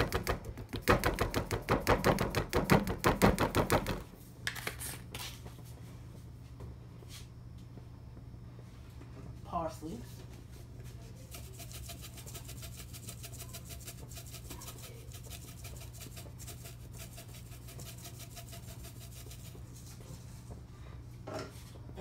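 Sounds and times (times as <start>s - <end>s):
steady low hum: 3.7s - 22.0s
dry herbs crackling into sauce: 10.8s - 19.8s.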